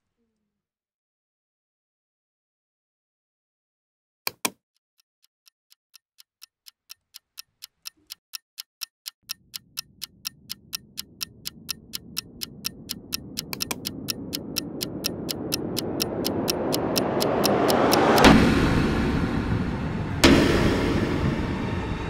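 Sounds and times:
ticking clock: 5.4s - 18.8s
low rumbling drone: 9.4s - 22.0s.

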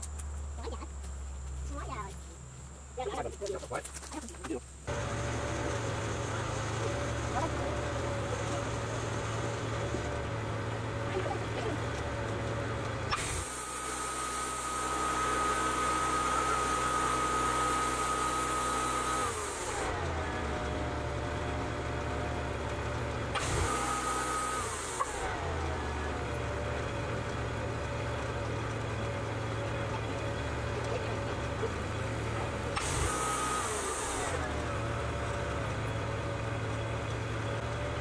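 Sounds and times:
sawmill engine running: 1.6s - 38.0s
hydraulic whine with hiss: 13.1s - 20.4s, 23.3s - 25.6s, 32.6s - 34.9s.

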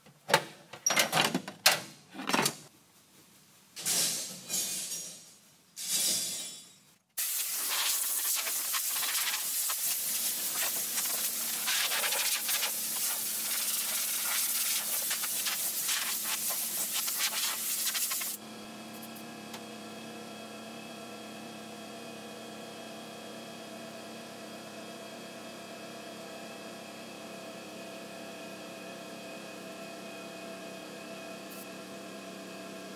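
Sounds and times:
aerosol spray can hissing: 7.2s - 18.4s.

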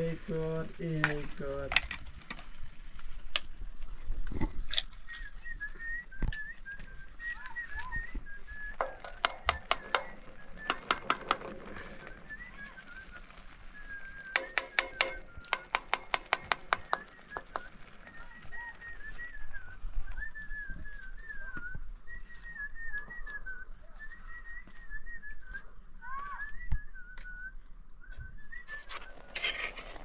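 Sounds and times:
high wavering whistle: 5.0s - 29.5s.

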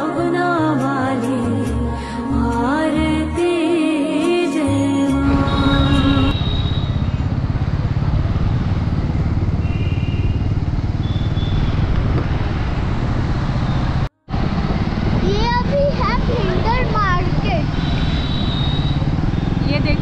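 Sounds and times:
vehicle engine drone: 4.8s - 20.0s
wind rumble: 5.2s - 20.0s.

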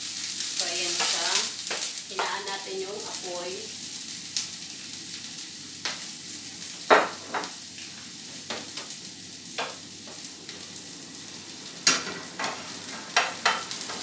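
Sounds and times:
garlic and onion sizzling in oil: 0.0s - 14.0s
spatula knocking and scraping pan: 0.9s - 2.5s, 9.6s - 10.2s, 11.9s - 14.0s.

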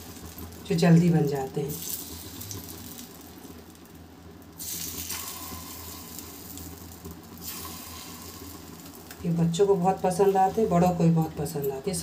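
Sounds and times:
batter sizzling in oil: 0.0s - 12.0s.

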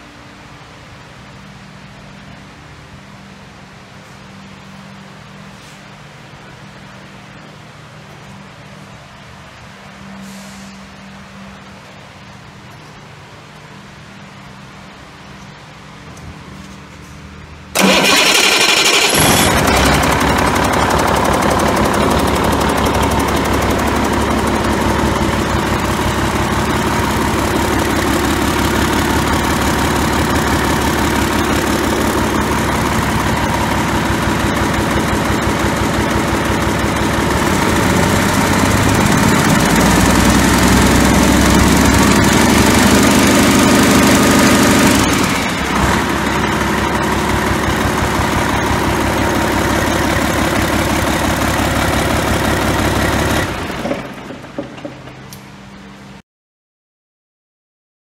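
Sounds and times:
diesel engine idling and revving: 16.6s - 56.1s.

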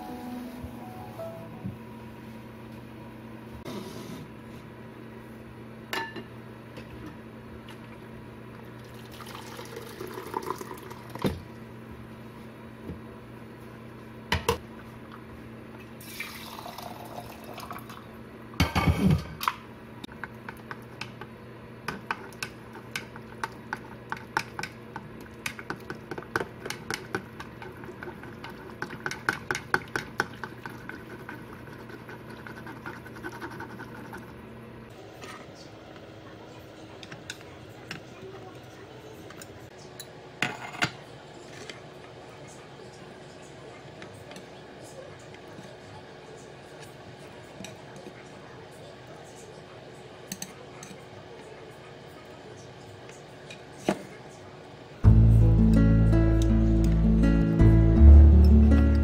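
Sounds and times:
boiling water pouring into jar: 8.8s - 11.2s, 16.0s - 18.0s.

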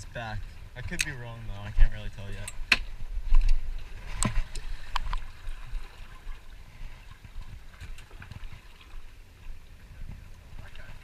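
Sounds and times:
water slapping against boat hull: 2.4s - 6.5s.

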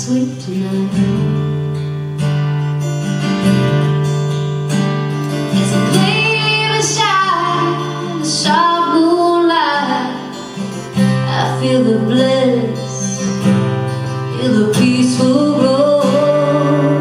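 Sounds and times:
woman singing: 0.0s - 1.7s, 5.5s - 17.0s
acoustic guitar strumming: 0.0s - 17.0s.

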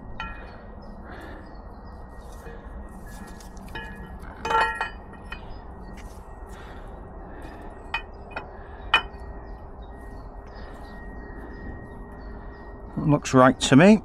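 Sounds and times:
steel camshaft clinking: 3.4s - 6.0s.

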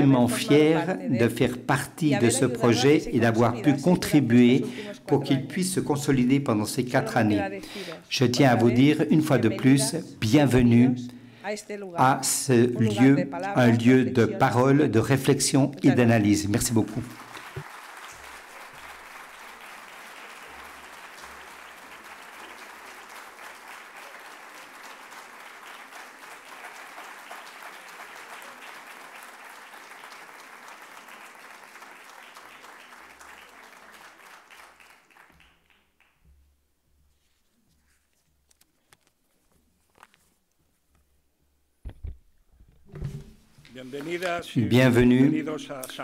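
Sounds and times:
audience applauding: 15.9s - 36.2s.

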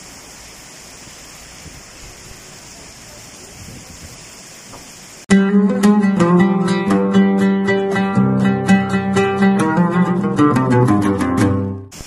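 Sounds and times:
heavy rain pouring: 0.0s - 5.3s
plucked-string music: 5.3s - 11.9s.

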